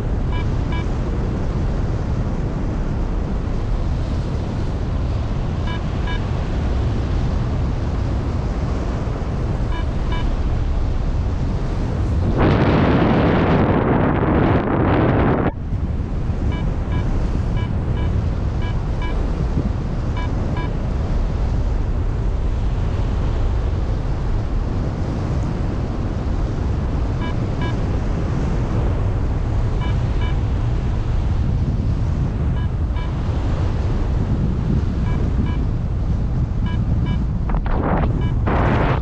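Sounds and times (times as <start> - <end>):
wind rushing over microphone: 0.0 - 39.0
quick short beeps: 35.0 - 35.6, 36.6 - 37.3, 38.0 - 38.8.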